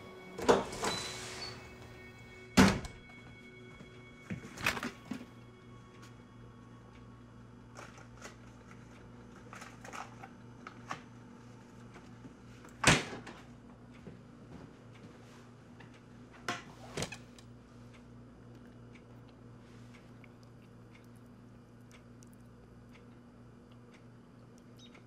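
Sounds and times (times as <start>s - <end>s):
steady low hum: 0.0s - 25.0s
refrigerator door thump: 2.6s - 3.0s.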